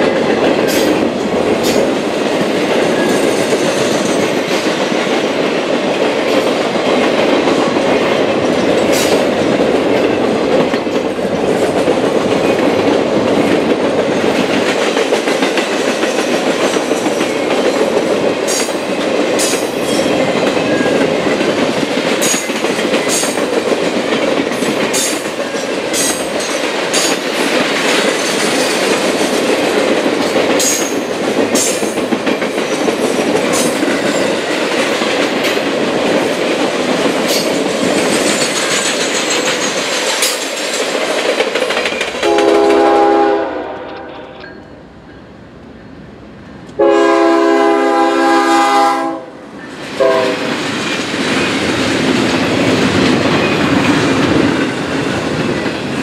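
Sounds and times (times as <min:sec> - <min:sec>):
train rolling past: 0:00.0 - 0:56.0
train horn: 0:42.2 - 0:44.4, 0:46.8 - 0:49.4, 0:50.0 - 0:50.5.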